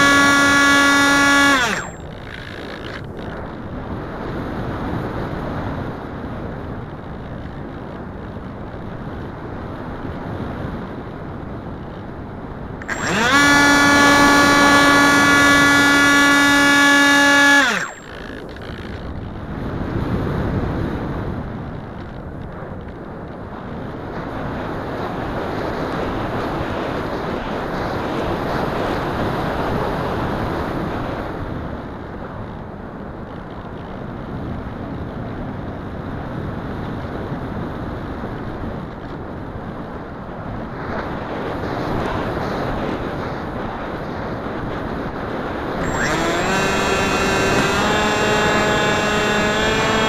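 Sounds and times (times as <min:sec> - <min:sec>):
electric motor whine: 0:00.0 - 0:03.6, 0:12.8 - 0:19.4, 0:45.8 - 0:50.0
wind rushing over microphone: 0:17.6 - 0:50.0.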